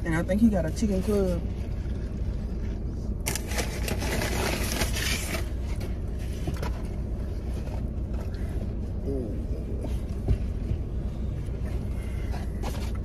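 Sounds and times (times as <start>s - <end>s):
low rumble in car cabin: 0.0s - 13.0s
paper bag rustling: 3.2s - 6.7s.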